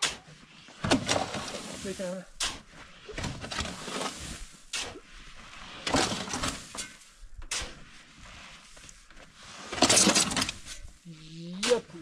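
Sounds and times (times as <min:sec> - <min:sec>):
shovel scraping gravel: 0:00.0 - 0:11.0.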